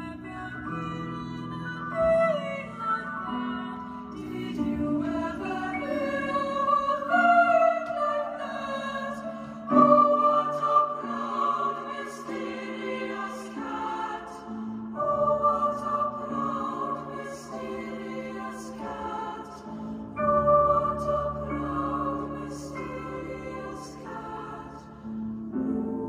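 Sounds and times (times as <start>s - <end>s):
choir singing held notes: 3.9s - 26.0s.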